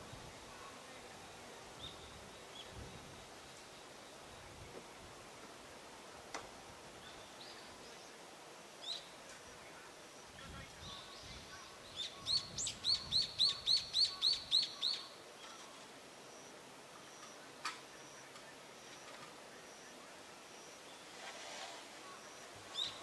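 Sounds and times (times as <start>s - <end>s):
bird singing: 10.6s - 15.7s, 22.0s - 23.0s.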